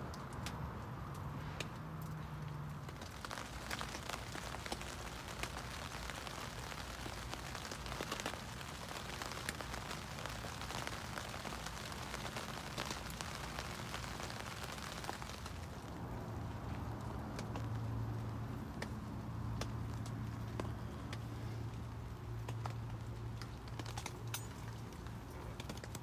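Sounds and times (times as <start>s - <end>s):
rain on tent fabric: 0.0s - 26.0s.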